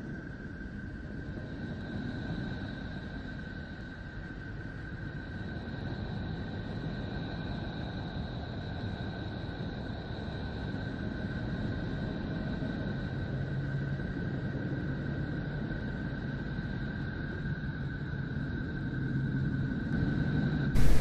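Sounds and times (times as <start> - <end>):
low hum: 20.8 - 21.0
low noisy drone: 20.8 - 21.0.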